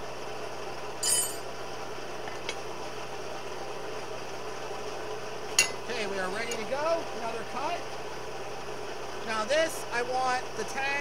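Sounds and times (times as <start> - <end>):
forge running noise: 0.0 - 11.0
metallic clink: 1.0 - 1.4, 5.6 - 5.8.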